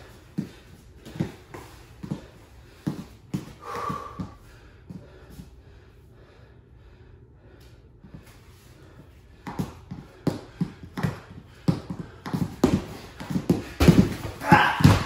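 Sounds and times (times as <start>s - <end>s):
shoes stamping on foam mat: 9.4s - 15.0s
slaps and thuds on leather dummy: 12.6s - 15.0s.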